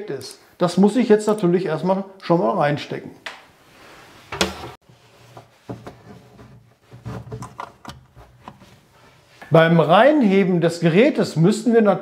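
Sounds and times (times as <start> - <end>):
knocks and scrapes on cabinet: 4.3 - 8.8.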